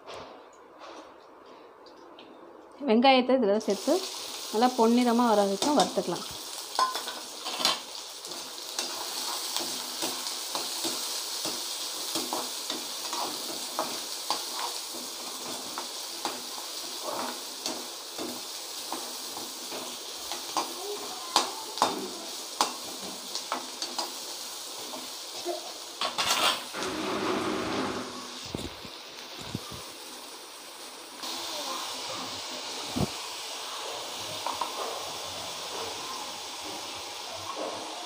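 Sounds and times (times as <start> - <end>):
onions sizzling in hot oil: 3.6 - 38.0
metal ladle scraping a pan: 26.0 - 28.5.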